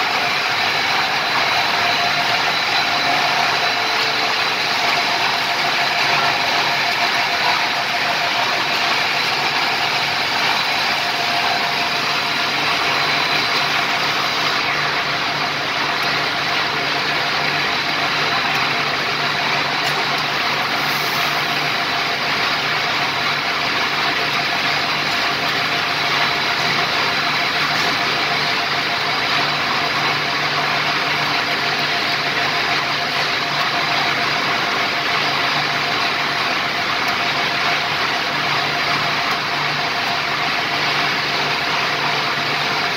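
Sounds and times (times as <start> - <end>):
high-pitched whine: 0.0 - 31.2
industrial machinery drone: 0.0 - 42.9.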